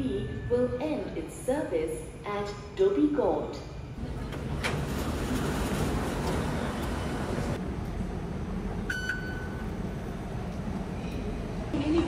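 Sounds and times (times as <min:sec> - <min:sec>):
train rumble: 0:04.0 - 0:08.9
card reader beep: 0:08.9 - 0:09.6.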